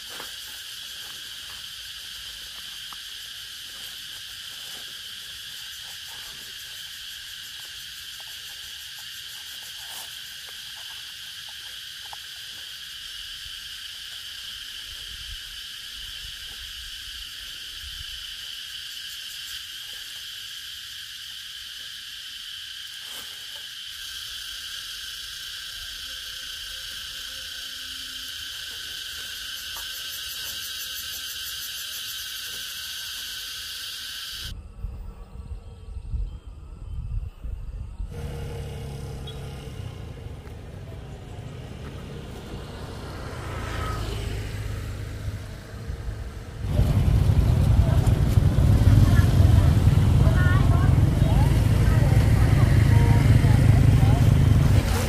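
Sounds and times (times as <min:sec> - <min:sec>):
insects chirring: 0:00.0 - 0:55.0.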